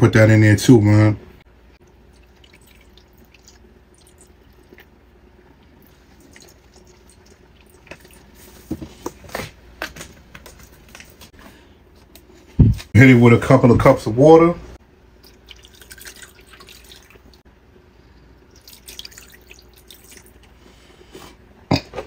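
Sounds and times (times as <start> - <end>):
milk pouring into bowl: 1.8 - 4.9, 15.2 - 17.4, 18.5 - 20.5.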